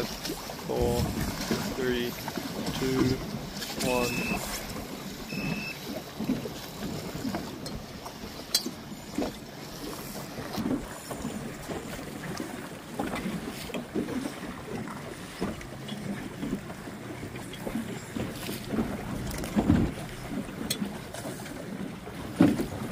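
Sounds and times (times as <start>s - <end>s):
wind on microphone: 0.0s - 2.1s
water slapping against boat hull: 0.0s - 22.9s.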